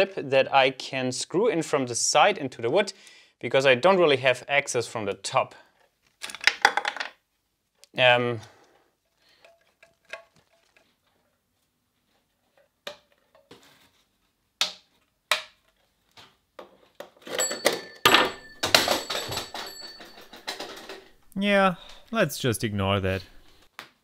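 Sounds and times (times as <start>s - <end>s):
hose clattering and rubbing: 17.2s - 22.2s.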